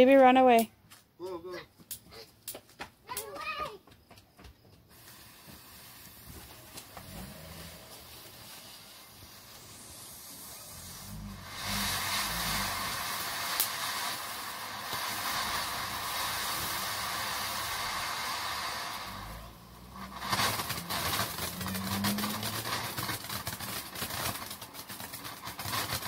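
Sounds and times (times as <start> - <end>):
firework fountain hissing: 4.8 - 26.0
fuse sputtering: 14.8 - 24.7
rapid crackling: 19.0 - 26.0.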